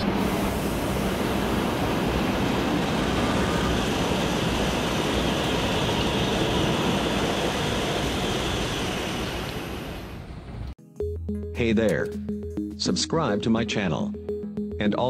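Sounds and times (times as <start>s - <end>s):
high-speed train rushing past: 0.0s - 10.8s.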